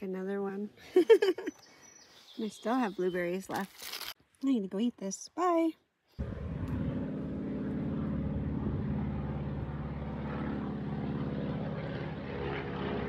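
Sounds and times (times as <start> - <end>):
propeller airplane droning: 6.2 - 13.0.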